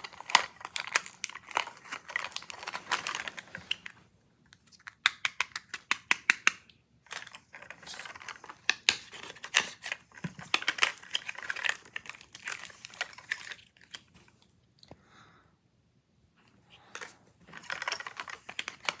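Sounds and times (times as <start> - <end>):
wrapping crinkling and tearing: 0.0 - 4.0, 7.0 - 14.5, 16.8 - 19.0.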